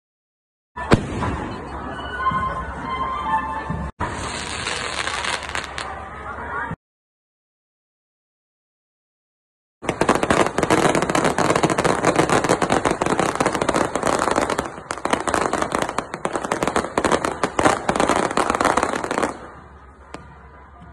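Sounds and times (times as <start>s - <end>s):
fireworks crackling: 4.0s - 6.0s, 9.8s - 20.4s.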